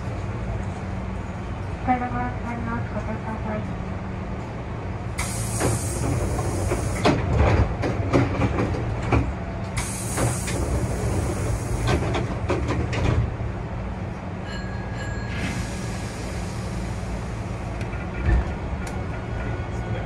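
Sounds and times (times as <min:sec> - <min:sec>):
train running rumble: 0:00.0 - 0:20.0
loud hiss: 0:05.2 - 0:07.0
wheels clicking over rail joints: 0:05.2 - 0:13.4.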